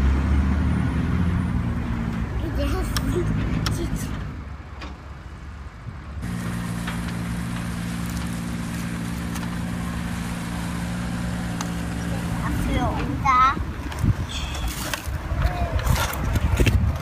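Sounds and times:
motor droning hum: 6.2s - 14.5s.

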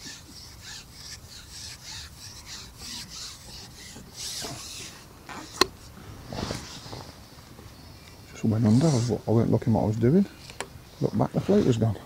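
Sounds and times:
rhythmic rasping rub: 0.0s - 7.1s.

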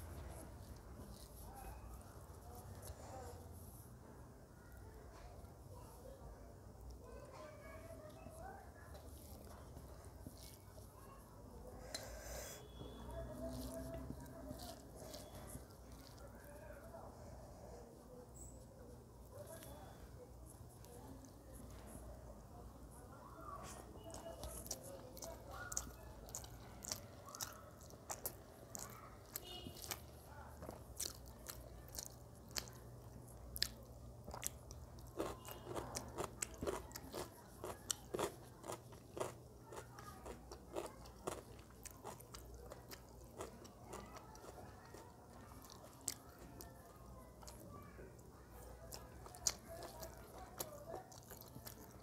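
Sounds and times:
person chewing food: 0.0s - 3.8s, 8.9s - 11.0s, 11.7s - 17.0s, 23.6s - 52.0s.

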